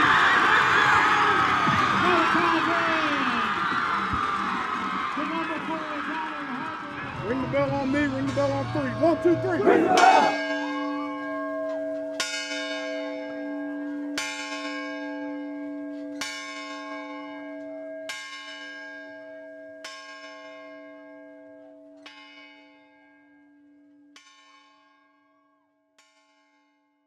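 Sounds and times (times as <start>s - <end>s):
bell ringing: 6.8s - 13.9s.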